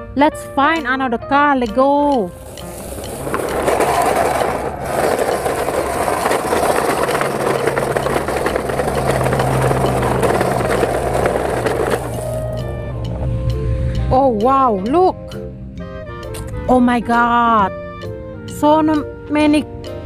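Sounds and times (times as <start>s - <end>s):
toy cars clattering: 2.2s - 12.8s
toy truck wheels rattling on bricks: 2.2s - 12.8s.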